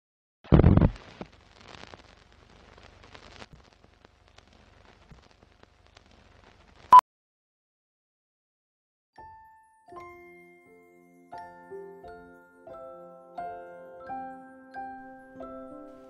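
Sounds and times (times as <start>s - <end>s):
film crackle and clicks: 0.6s - 6.9s.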